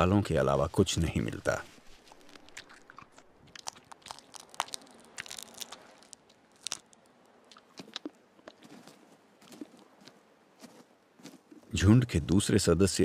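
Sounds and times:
wolves chewing and tearing: 0:02.0 - 0:07.0.

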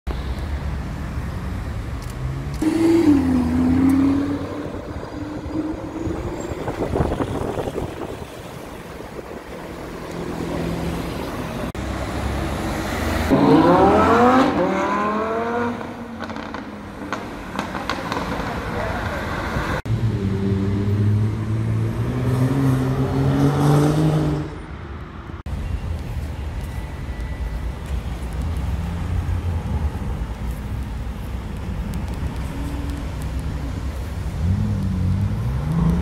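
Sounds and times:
sports car engines revving: 0:02.0 - 0:24.6, 0:31.6 - 0:36.0.

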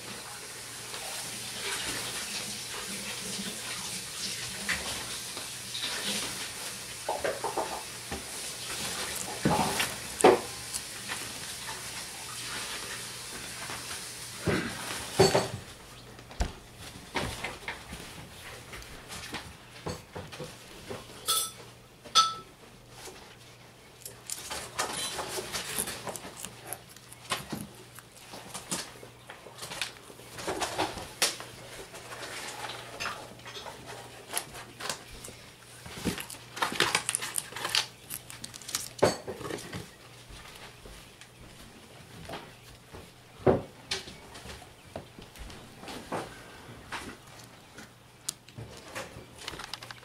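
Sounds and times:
dishes and cutlery clattering: 0:14.5 - 0:15.7, 0:21.2 - 0:22.5, 0:24.8 - 0:26.0.

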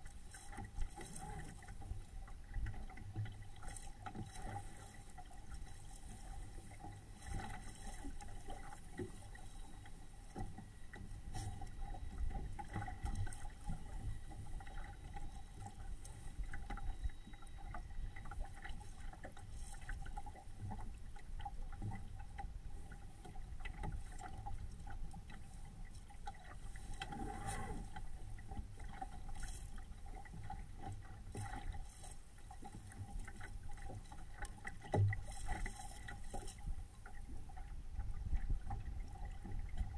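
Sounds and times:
water splashing against hull: 0:00.0 - 0:39.9
low wind rumble on microphone: 0:36.6 - 0:39.9.

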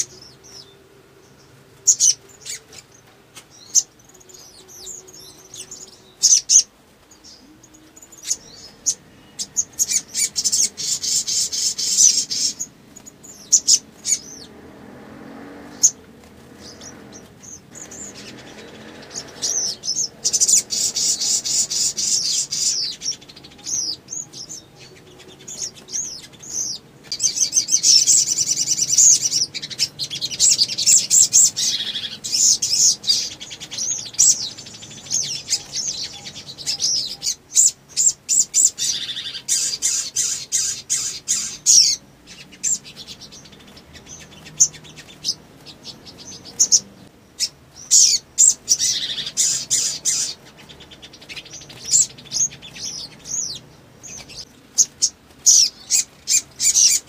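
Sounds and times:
sunbird chirping trills: 0:00.0 - 0:57.0.

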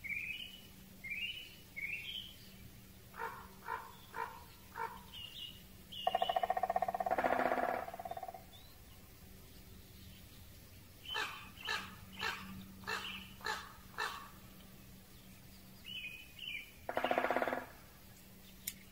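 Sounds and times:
bird chirping: 0:00.0 - 0:18.9
woodpecker drumming on wood: 0:06.0 - 0:08.5, 0:16.9 - 0:17.9.

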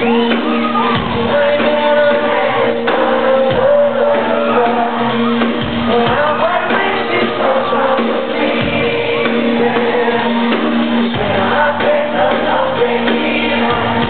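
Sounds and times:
crowd shouting along: 0:00.0 - 0:14.0
live band playing: 0:00.0 - 0:14.0
man singing into microphone: 0:00.9 - 0:14.0.

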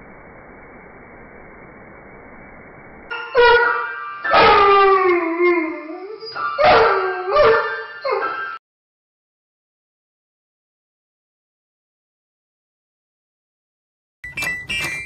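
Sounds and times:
steady hiss: 0:00.0 - 0:04.2
dog howling: 0:03.3 - 0:08.4.

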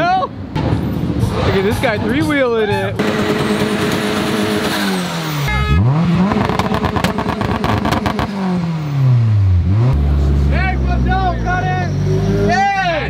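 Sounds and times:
exhaust popping: 0:02.9 - 0:11.2
car engine revving: 0:03.0 - 0:13.0.

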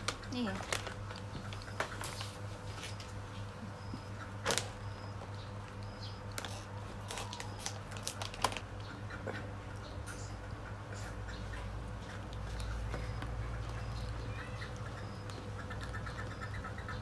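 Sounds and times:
plastic packet crinkling: 0:00.6 - 0:01.3, 0:06.3 - 0:08.7.

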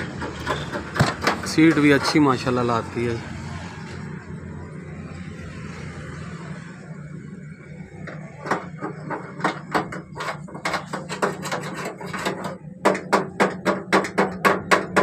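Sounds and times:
sharp hammering strikes: 0:12.8 - 0:15.0.

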